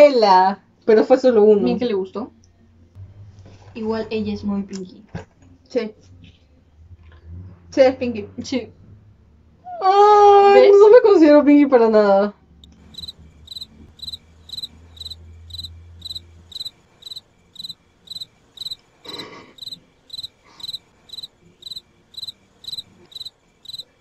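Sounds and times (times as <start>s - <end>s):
cricket chirping: 12.6s - 24.0s.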